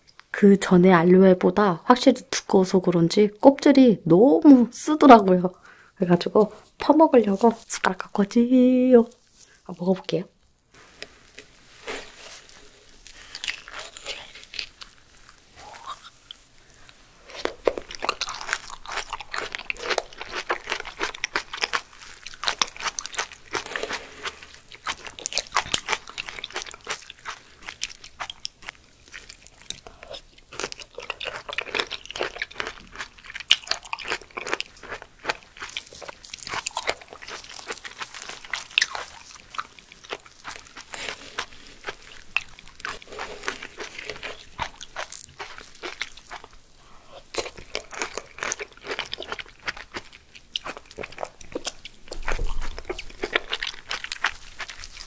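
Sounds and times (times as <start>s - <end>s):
wet sticky chewing: 11.4s - 55.0s.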